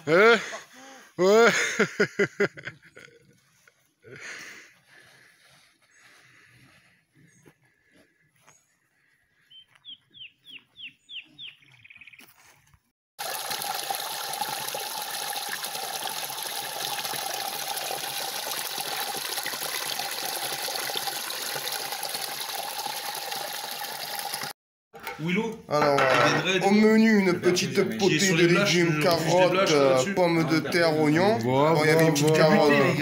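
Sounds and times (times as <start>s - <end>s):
water pouring into pool: 13.2s - 24.6s, 31.0s - 33.0s.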